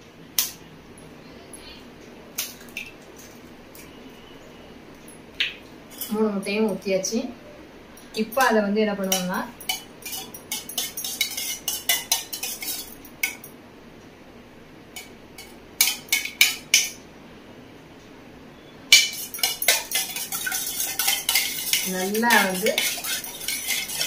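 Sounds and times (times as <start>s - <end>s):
spoon beating eggs in metal bowl: 8.3s - 13.4s, 15.0s - 17.0s, 18.9s - 24.0s.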